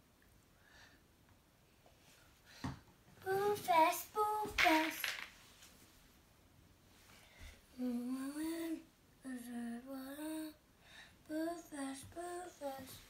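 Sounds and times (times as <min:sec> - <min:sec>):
boy singing softly: 0:03.2 - 0:05.2, 0:07.7 - 0:13.0.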